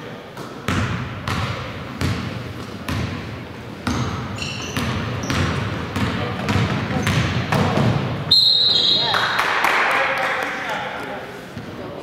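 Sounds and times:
sneakers squeaking on floor: 0:00.4 - 0:09.3
basketball dribbling on wooden floor: 0:04.8 - 0:08.0.

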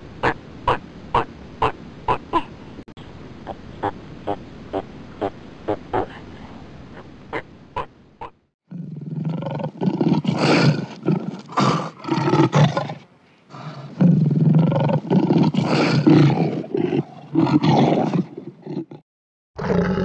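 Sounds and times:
lion roaring: 0:19.6 - 0:20.0.

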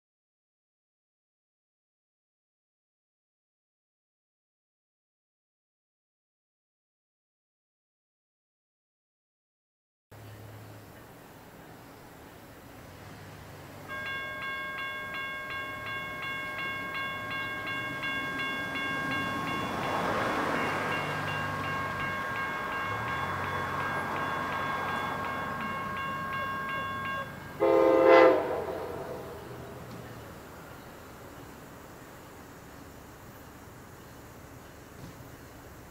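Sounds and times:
car passing: 0:10.2 - 0:35.9
crossing warning bell ringing: 0:13.8 - 0:31.0
locomotive horn blast: 0:21.8 - 0:29.9.

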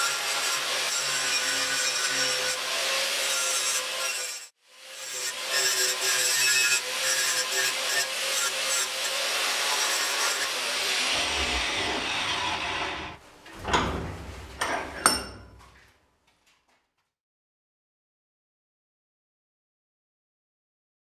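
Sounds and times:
angle grinder sanding steel: 0:00.0 - 0:13.2
metal vise clanks: 0:13.6 - 0:15.6.

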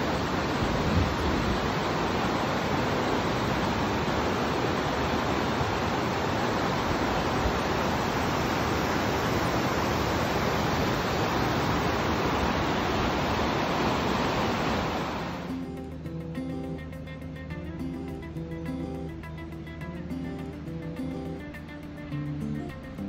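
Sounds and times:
river rushing over stones: 0:00.0 - 0:15.5.

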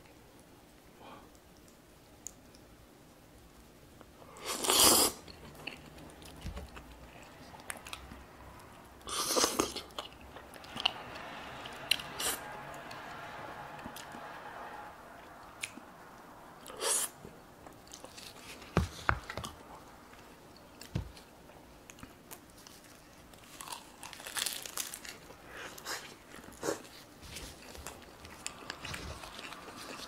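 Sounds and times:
crisp crunches: 0:22.6 - 0:26.1
chewing and biting: 0:27.5 - 0:30.0.

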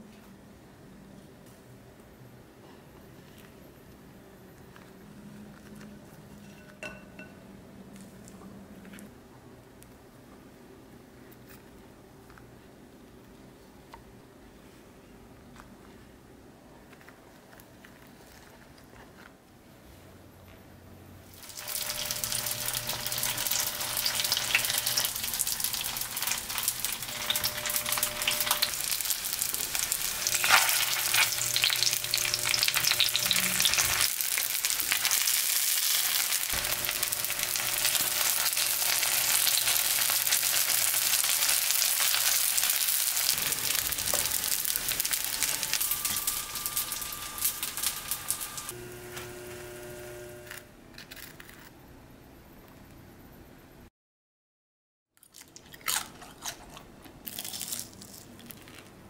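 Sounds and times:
food sizzling in oil: 0:21.3 - 0:50.4.

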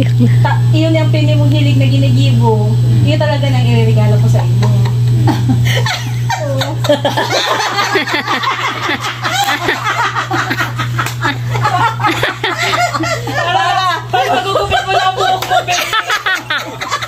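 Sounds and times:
steady low hum: 0:00.0 - 0:17.0
group of people laughing: 0:04.6 - 0:17.0.

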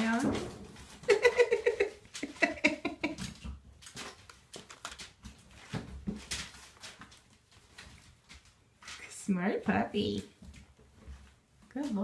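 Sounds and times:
newspaper crinkling and rustling: 0:03.8 - 0:09.0.

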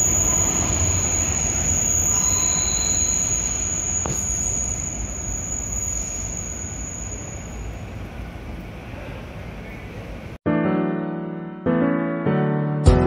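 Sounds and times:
train wheels rumbling on rail: 0:00.0 - 0:05.2
thin high whine: 0:00.0 - 0:08.8
faint wheel squeal: 0:00.0 - 0:10.1.

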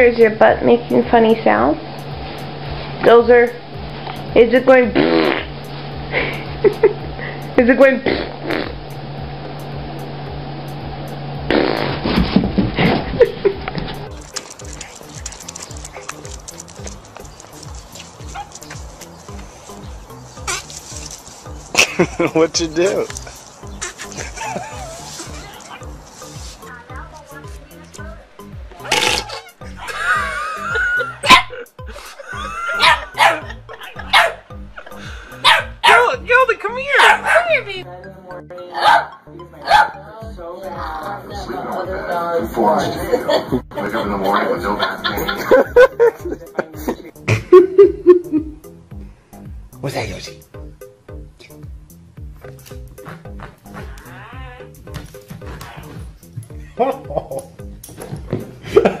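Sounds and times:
steady low hum: 0:00.0 - 0:35.9
background music: 0:00.0 - 0:59.0
puppy yapping: 0:18.2 - 0:18.9, 0:20.4 - 0:20.8, 0:23.8 - 0:26.0, 0:28.8 - 0:29.8, 0:31.2 - 0:31.7, 0:32.7 - 0:34.5, 0:35.4 - 0:36.2, 0:36.9 - 0:37.7, 0:38.8 - 0:40.0.

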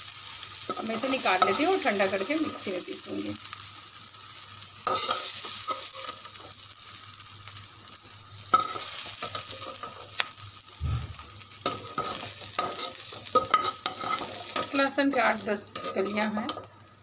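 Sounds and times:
hot oil sizzling: 0:00.0 - 0:17.0
metal spoon scraping pan: 0:04.8 - 0:06.3, 0:08.6 - 0:10.0, 0:11.6 - 0:16.7.

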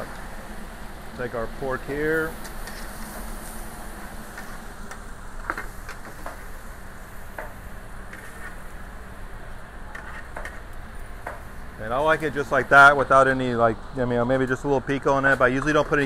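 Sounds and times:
kitchen hum and hiss: 0:00.0 - 0:16.0.

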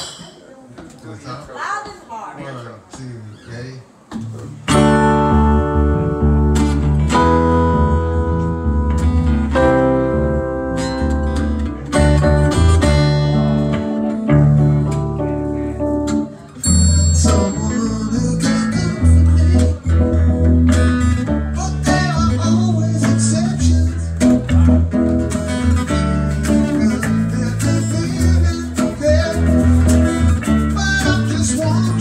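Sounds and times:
strummed acoustic guitar: 0:04.5 - 0:32.0
deep bass line: 0:04.8 - 0:16.1, 0:16.7 - 0:32.0
electric keyboard: 0:04.8 - 0:21.7
count-in: 0:16.6 - 0:19.6.

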